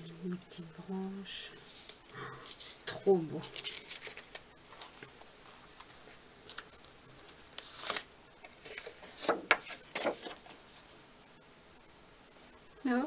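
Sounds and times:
paper and card rustling: 0:01.6 - 0:11.0.

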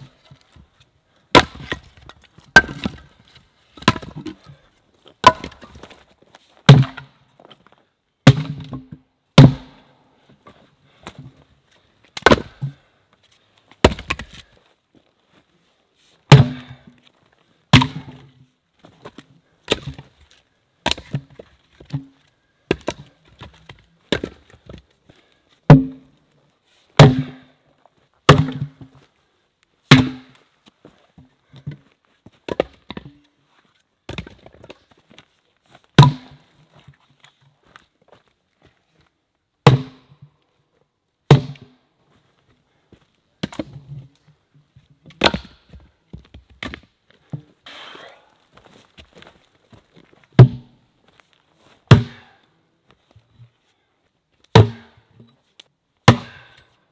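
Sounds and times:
axe chopping firewood: 0:01.3 - 0:03.1, 0:03.8 - 0:04.5, 0:05.2 - 0:06.0, 0:06.7 - 0:07.1, 0:08.2 - 0:09.8, 0:12.2 - 0:12.8, 0:13.8 - 0:14.5, 0:16.3 - 0:17.0, 0:17.7 - 0:18.3, 0:19.0 - 0:20.2, 0:20.8 - 0:24.8, 0:25.7 - 0:26.1, 0:27.0 - 0:27.6, 0:28.3 - 0:28.9, 0:29.9 - 0:30.4, 0:32.5 - 0:33.2, 0:34.1 - 0:34.8, 0:36.0 - 0:36.4, 0:39.6 - 0:40.2, 0:41.3 - 0:41.8, 0:43.4 - 0:43.9, 0:45.1 - 0:48.2, 0:50.4 - 0:50.7, 0:51.9 - 0:52.4, 0:54.5 - 0:55.1, 0:56.0 - 0:56.7.

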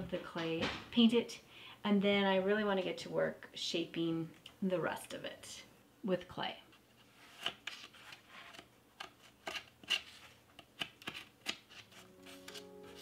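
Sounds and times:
knife scraping clay: 0:07.2 - 0:13.0
music: 0:11.9 - 0:13.0.

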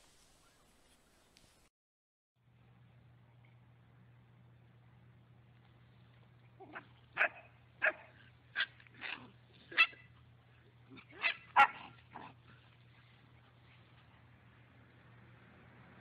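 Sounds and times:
puppy barking and yipping: 0:06.6 - 0:10.2, 0:10.9 - 0:12.4.

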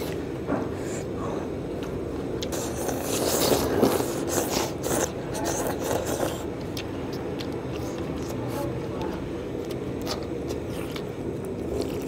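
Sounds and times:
slurping noodles: 0:02.4 - 0:06.6.

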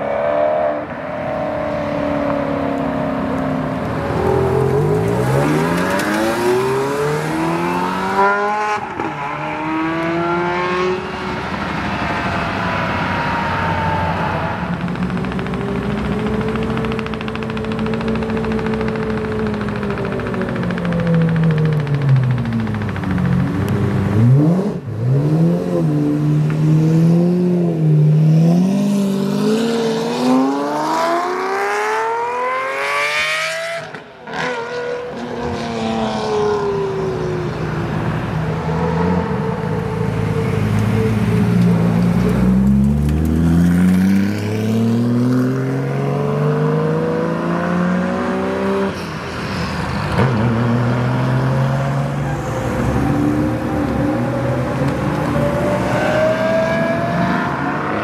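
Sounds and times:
sports car accelerating: 0:00.0 - 0:58.0
sports car engine revving: 0:14.8 - 0:35.6.

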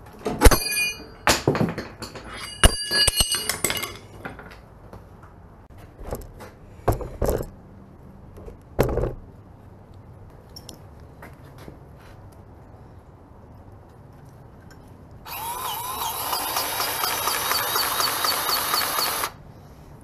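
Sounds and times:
metal tools clanking: 0:00.2 - 0:04.6.

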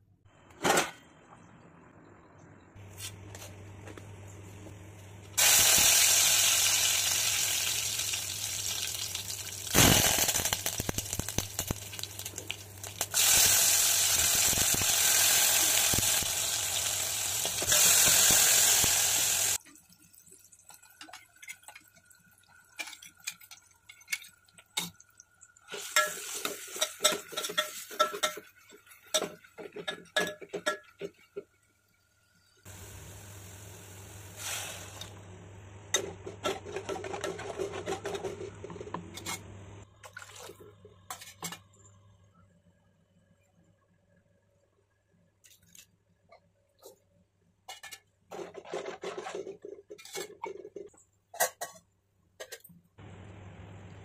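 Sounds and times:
loud sizzling in pot: 0:05.4 - 0:19.6, 0:25.6 - 0:39.6.

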